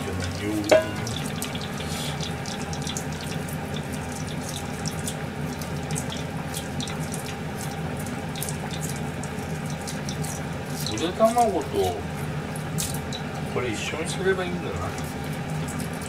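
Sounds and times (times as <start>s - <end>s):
tap running into sink: 0.0s - 1.6s
low steady hum: 0.0s - 16.0s.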